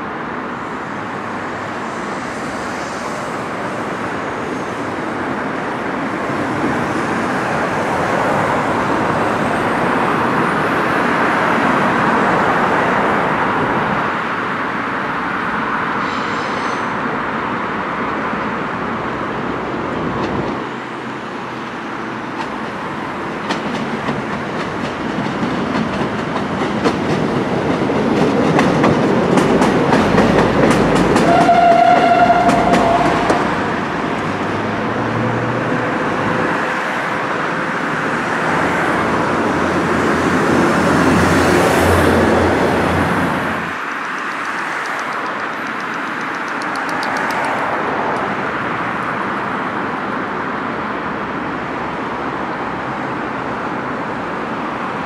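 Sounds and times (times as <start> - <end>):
diesel train passing: 0.0 - 55.0
train horn blast: 31.2 - 33.6.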